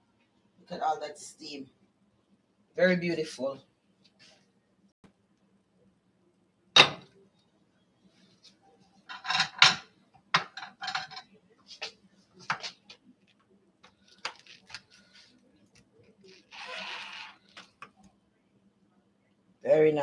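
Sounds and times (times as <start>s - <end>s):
kitchenware clicking: 9.1s - 9.8s, 10.4s - 11.2s.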